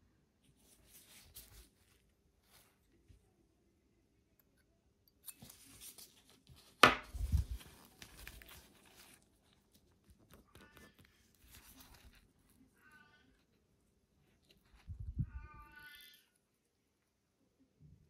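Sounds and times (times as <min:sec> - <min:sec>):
plastic glove crinkling: 0:05.4 - 0:12.8.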